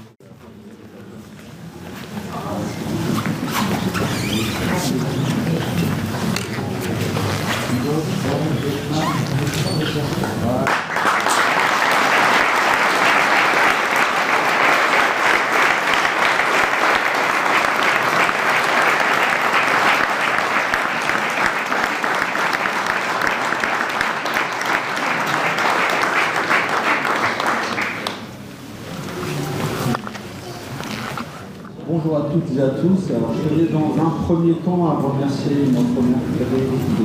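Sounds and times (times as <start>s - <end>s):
crowd applauding: 10.6s - 28.4s.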